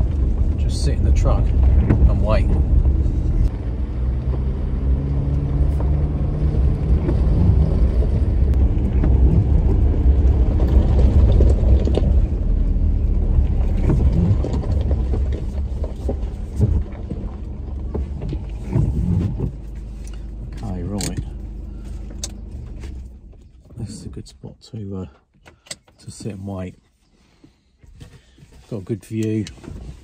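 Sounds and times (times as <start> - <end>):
engine and tyre rumble: 0.0 - 30.0
gravel clicks and knocks: 7.0 - 23.9.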